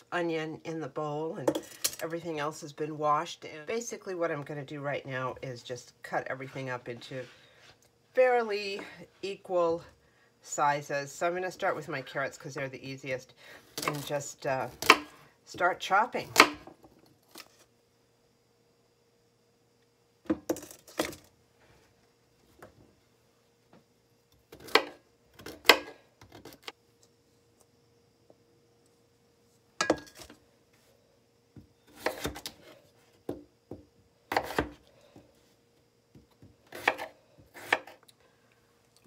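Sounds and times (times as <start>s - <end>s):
knife chopping on plastic board: 14.8s - 15.2s, 33.3s - 34.8s.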